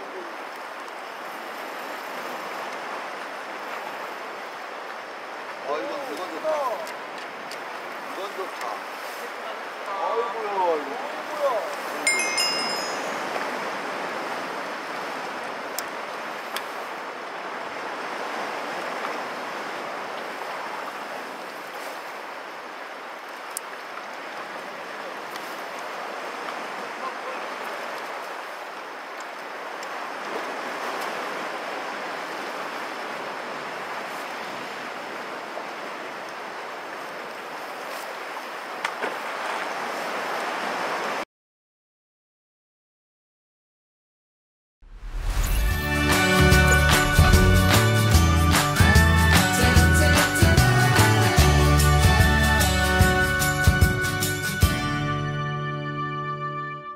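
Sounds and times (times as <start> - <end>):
waves on rocky shore: 0.0 - 41.2, 45.0 - 55.0
wind: 0.0 - 41.3, 44.8 - 56.7
brief high tone: 12.0 - 13.6, 45.1 - 48.4.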